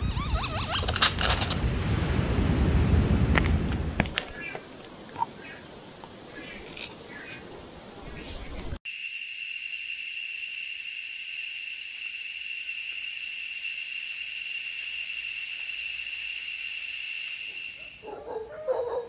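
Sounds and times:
repeated animal calls: 0:00.0 - 0:01.1
high-pitched insect drone: 0:08.9 - 0:18.1
hiss: 0:08.9 - 0:18.1.

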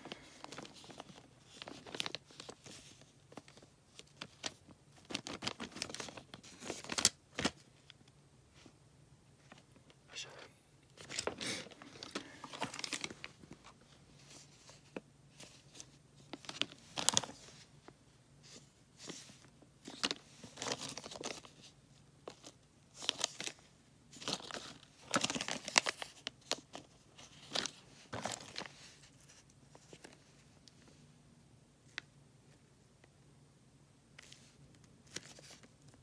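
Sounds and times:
plastic bags crinkling: 0:00.0 - 0:07.7, 0:11.0 - 0:13.6, 0:15.6 - 0:17.5, 0:24.2 - 0:29.0.

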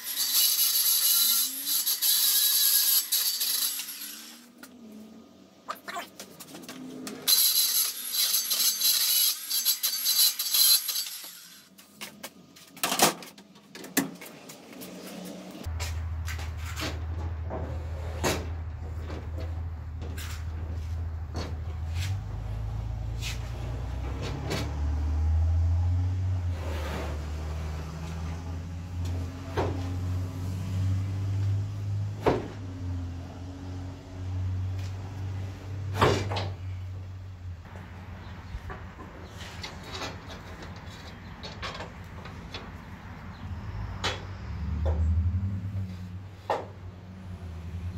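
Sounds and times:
circular saw cutting board: 0:00.0 - 0:04.8, 0:07.1 - 0:11.7.

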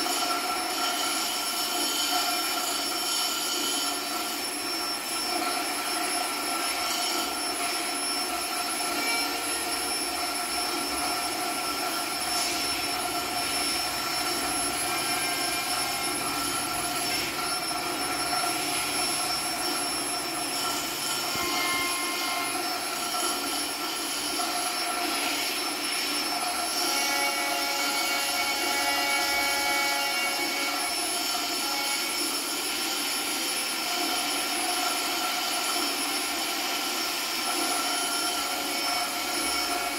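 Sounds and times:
hissing electronic drone: 0:00.0 - 0:39.9
held high tones: 0:03.8 - 0:25.4.

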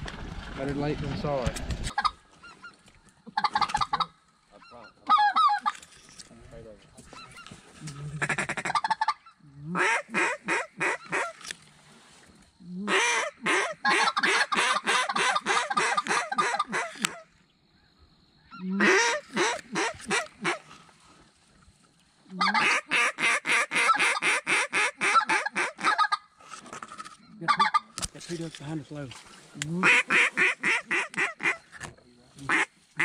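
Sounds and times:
duck call quacking: 0:08.2 - 0:11.3, 0:12.9 - 0:17.2, 0:18.5 - 0:20.7, 0:22.4 - 0:26.3, 0:27.4 - 0:27.9, 0:29.7 - 0:31.6, 0:32.5 - 0:33.0.

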